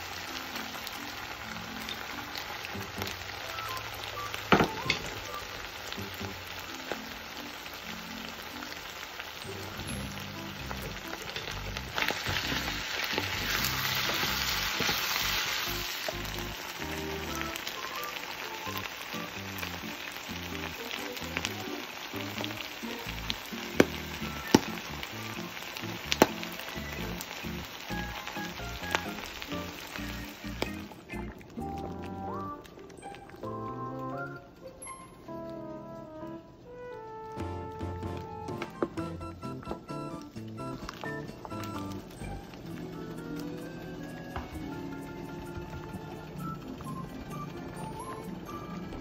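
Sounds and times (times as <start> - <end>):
meat sizzling in a pan: 0.0 - 33.6.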